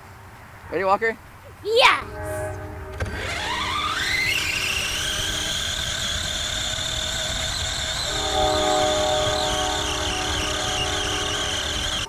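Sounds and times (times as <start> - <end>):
electric motor whining: 2.9 - 12.0.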